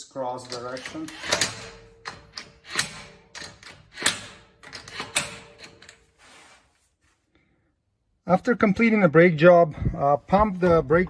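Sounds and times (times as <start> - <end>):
impact wrench bursts: 0.4 - 5.9.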